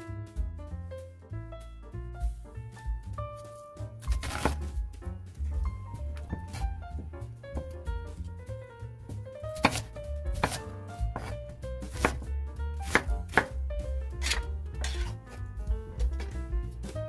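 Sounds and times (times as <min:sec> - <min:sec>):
knife chopping on wooden board: 0:04.0 - 0:04.7, 0:09.1 - 0:16.4.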